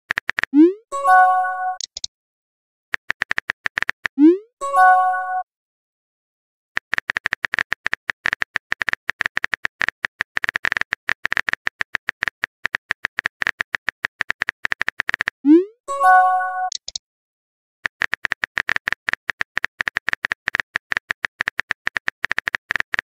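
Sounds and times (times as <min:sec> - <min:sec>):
bright message chime: 0:00.9 - 0:01.8, 0:04.6 - 0:05.4, 0:15.9 - 0:16.7
phone keyboard tapping clicks: 0:01.8 - 0:02.1, 0:03.0 - 0:04.2, 0:06.8 - 0:15.3.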